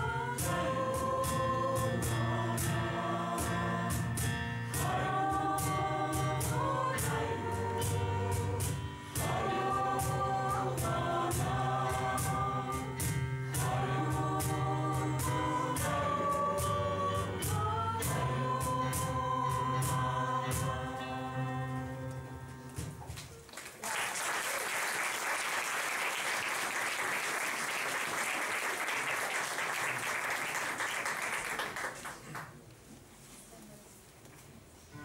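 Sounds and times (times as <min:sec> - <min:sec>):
choir holding a chord: 0:00.0 - 0:22.8
audience applause: 0:23.4 - 0:32.6.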